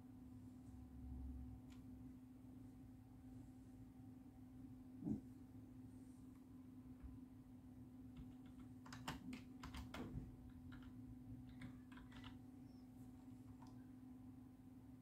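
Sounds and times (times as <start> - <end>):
keyboard typing: 8.1 - 12.8.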